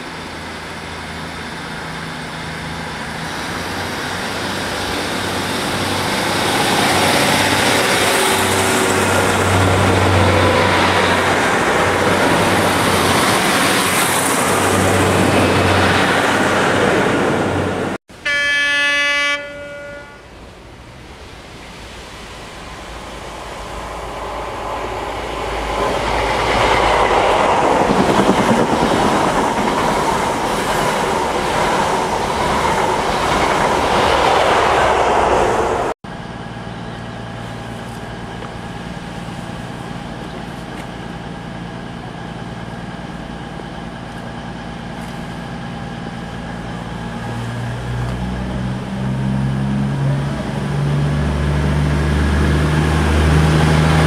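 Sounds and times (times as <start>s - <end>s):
diesel train engines idling: 0.0s - 54.0s
train passing at speed: 0.0s - 54.0s
train horn blast: 18.1s - 20.4s.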